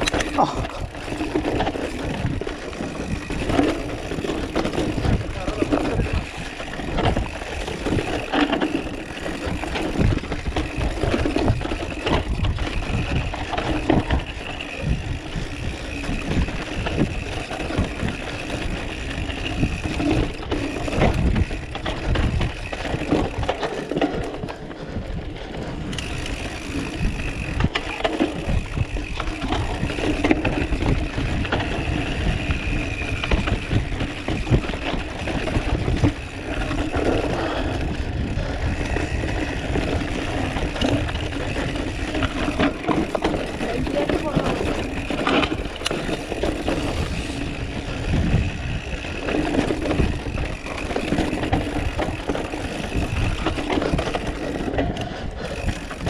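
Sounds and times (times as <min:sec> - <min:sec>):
mountain bike rattling: 0:00.0 - 0:56.0
wind rumble on microphone: 0:00.0 - 0:56.0.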